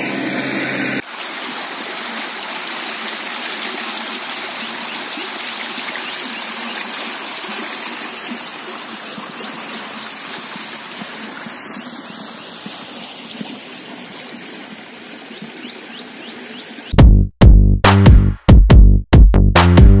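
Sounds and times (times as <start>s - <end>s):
water rushing along a drain: 0.0s - 16.9s
electronic music with heavy beats: 16.9s - 20.0s.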